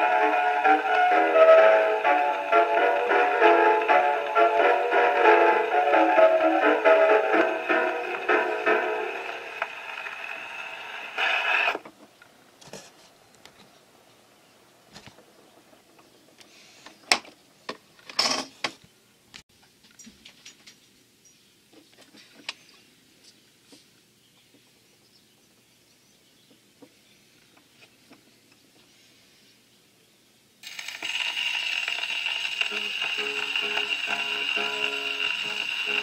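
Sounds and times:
gramophone record playing: 0.0s - 12.0s, 30.6s - 36.0s.

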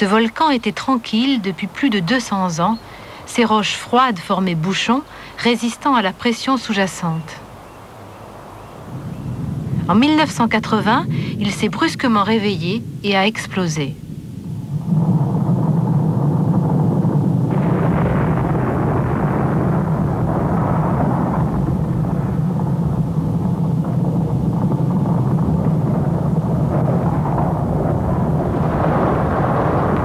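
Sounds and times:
volcano deep rumble: 8.8s - 30.0s.

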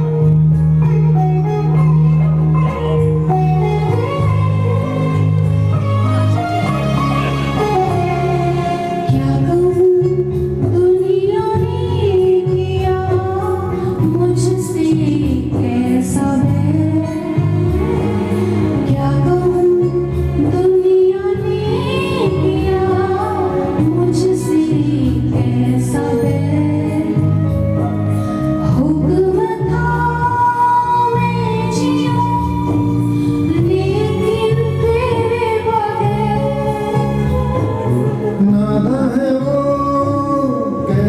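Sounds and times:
instrumental accompaniment: 0.0s - 41.0s
woman singing into microphone: 0.0s - 41.0s.

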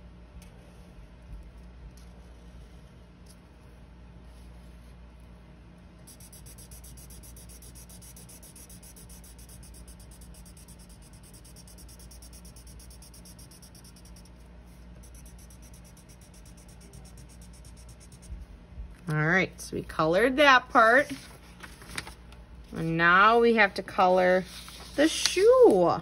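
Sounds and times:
marker scribbling on paper: 6.1s - 18.4s.

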